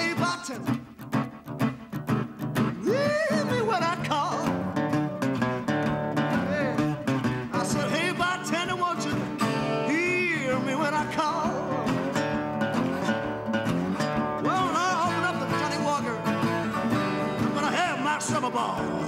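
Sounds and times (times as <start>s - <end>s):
man singing: 0.0s - 0.9s, 2.7s - 4.9s, 5.6s - 12.3s, 14.4s - 19.0s
acoustic guitar picked: 0.0s - 19.0s.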